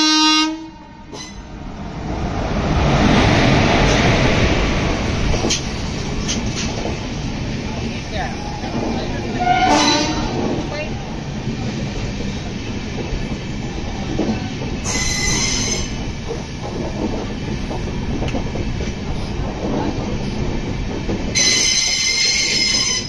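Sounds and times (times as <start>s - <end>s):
train wheels rumbling on rails: 1.0s - 23.0s
high-pitched wheel squeal: 14.9s - 15.9s.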